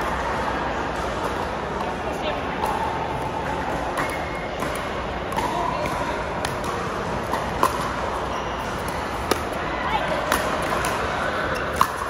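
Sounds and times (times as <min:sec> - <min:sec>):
voices in echoing hall: 0:00.0 - 0:12.0
paddles hitting plastic ball: 0:03.6 - 0:08.0, 0:11.7 - 0:12.0.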